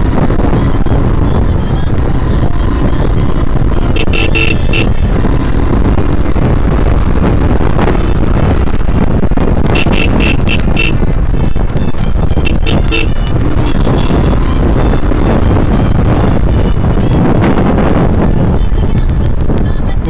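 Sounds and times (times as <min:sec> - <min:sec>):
motorcycle engine rumbling: 0:00.0 - 0:20.0
short high-pitched beeps: 0:04.0 - 0:04.9, 0:09.7 - 0:11.0.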